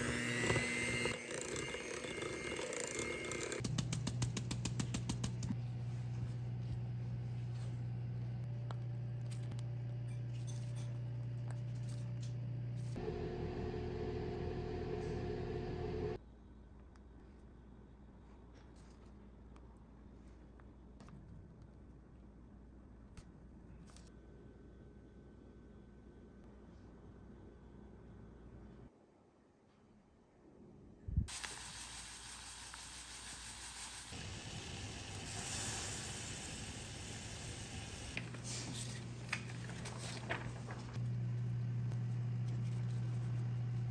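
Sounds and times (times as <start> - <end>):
oven fan whirring: 5.6 - 16.2, 34.2 - 43.9.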